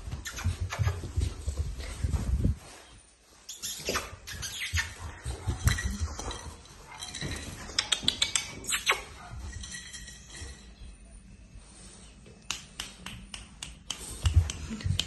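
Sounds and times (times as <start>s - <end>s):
puppy scuffling on turf: 0.0s - 7.8s.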